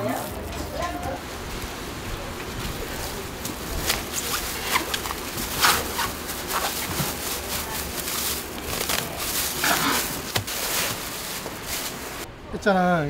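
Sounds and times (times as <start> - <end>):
plastic bag crinkling: 2.7 - 12.2.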